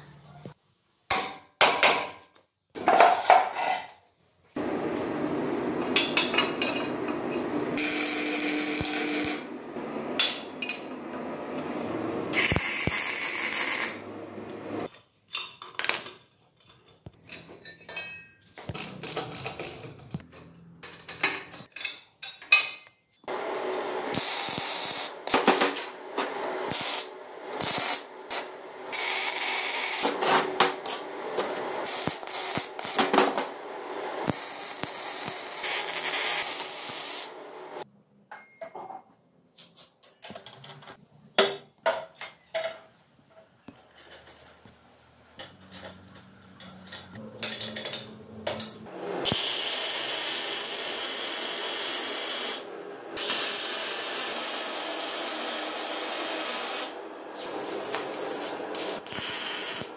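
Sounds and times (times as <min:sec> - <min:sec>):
welder crackling: 0:07.8 - 0:10.4, 0:12.3 - 0:14.9, 0:23.3 - 0:37.8, 0:49.2 - 0:59.9
metal parts clanking: 0:45.4 - 0:48.9
tools working: 0:45.4 - 0:49.5.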